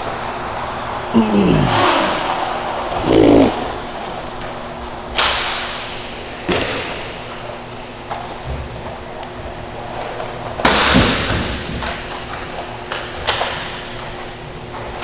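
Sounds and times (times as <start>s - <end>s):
voice falling in pitch: 1.2s - 2.3s, 3.0s - 4.0s.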